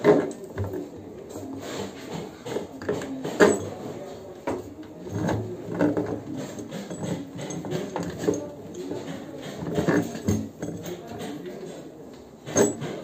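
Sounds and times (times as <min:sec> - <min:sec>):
steel bolts knocking and clattering: 0:05.1 - 0:11.4, 0:12.4 - 0:13.0.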